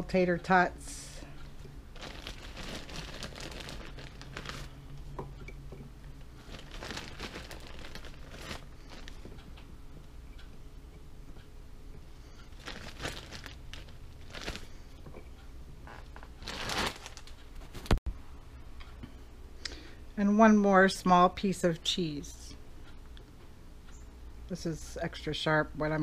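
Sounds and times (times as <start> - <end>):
plastic bag crinkling: 1.9 - 4.8, 6.4 - 9.2, 12.5 - 14.8, 16.2 - 18.0.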